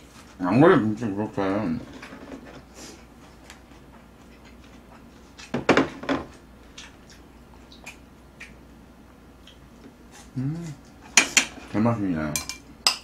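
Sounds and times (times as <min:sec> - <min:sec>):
person chewing: 0:03.2 - 0:05.5, 0:06.6 - 0:08.6.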